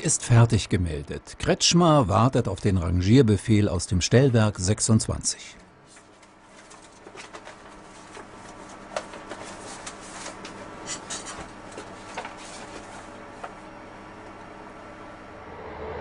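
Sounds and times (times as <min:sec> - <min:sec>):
paper rustling: 0:05.9 - 0:13.2.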